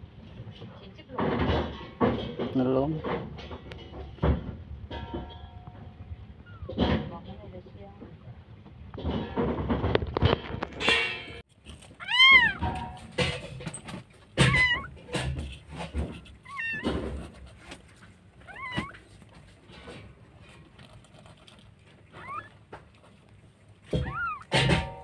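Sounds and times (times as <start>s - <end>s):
knocks: 1.2s - 6.0s, 12.3s - 17.8s, 23.8s - 25.0s
soft rustling: 11.5s - 24.5s
kitten mewing: 12.0s - 12.8s, 14.4s - 15.1s, 18.4s - 19.1s, 23.9s - 24.7s.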